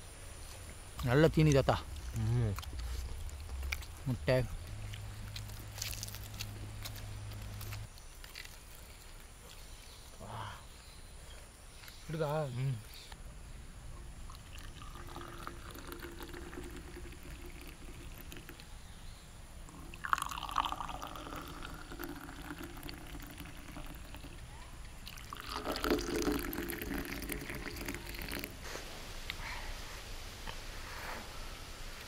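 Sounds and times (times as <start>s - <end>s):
tea pouring into glass: 14.4s - 18.6s, 19.7s - 24.4s, 25.1s - 28.6s.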